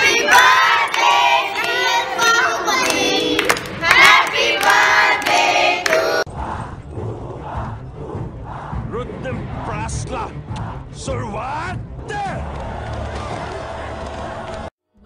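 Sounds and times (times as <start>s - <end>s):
hands clapping: 0.0s - 6.2s, 12.4s - 14.7s
group singing: 0.0s - 9.6s, 10.5s - 11.0s.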